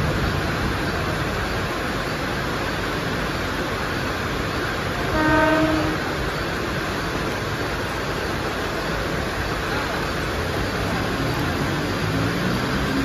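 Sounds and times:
heavy rain hiss: 0.0 - 13.0
train noise: 0.0 - 13.0
train horn blast: 5.0 - 6.2.

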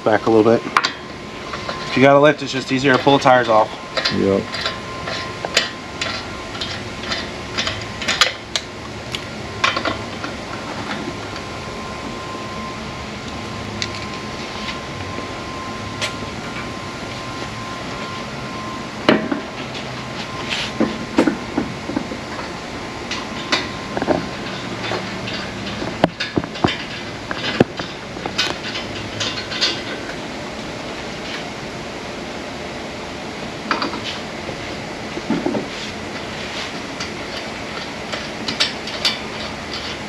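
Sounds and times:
steady background hum: 0.0 - 40.0
metal tools clinking: 24.3 - 30.2.

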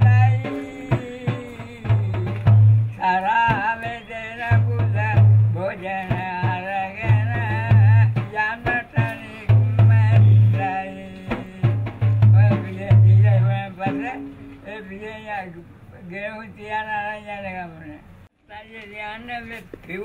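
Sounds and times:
drumming: 0.0 - 14.4.

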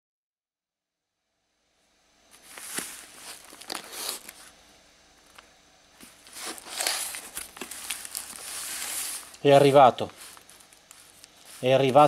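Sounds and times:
padded envelope rustling: 2.3 - 4.5, 6.0 - 12.0.

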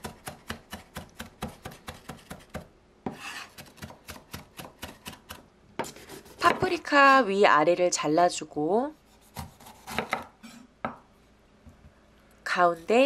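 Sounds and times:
knife chopping on wooden board: 0.0 - 6.7, 9.3 - 11.0.

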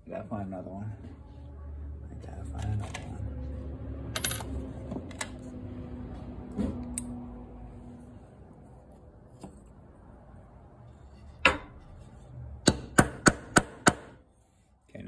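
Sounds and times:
hammer tapping nails: 12.6 - 14.2.

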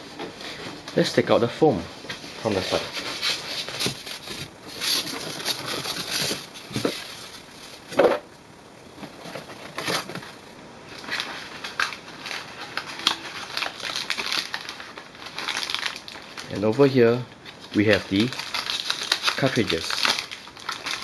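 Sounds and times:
foam scraping against cardboard: 2.5 - 8.1
cardboard packing handled: 2.5 - 8.2, 8.8 - 16.4.

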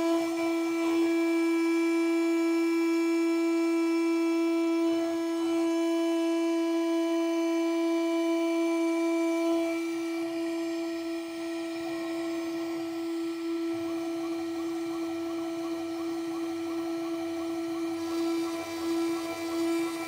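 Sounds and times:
router spindle high whine: 0.0 - 20.0.

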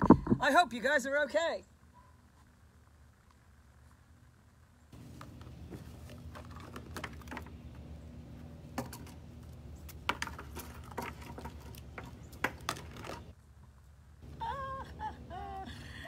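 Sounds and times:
steady low hum: 1.6 - 16.0.

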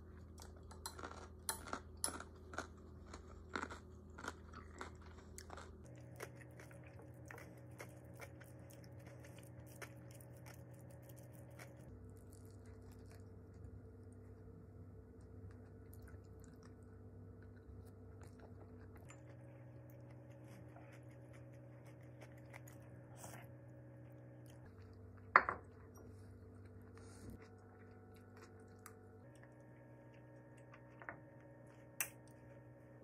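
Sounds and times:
person chewing: 0.0 - 13.8, 15.4 - 31.0
faint hum: 0.0 - 33.0.

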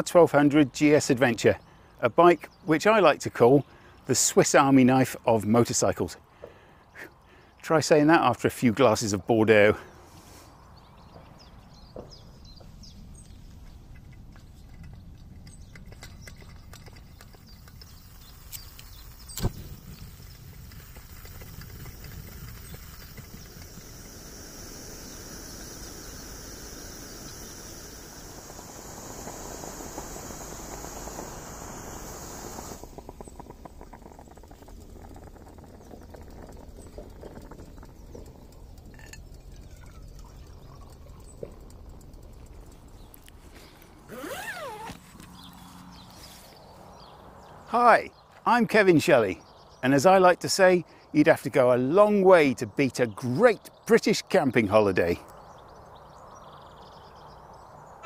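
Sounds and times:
camping stove hissing: 16.2 - 46.1.

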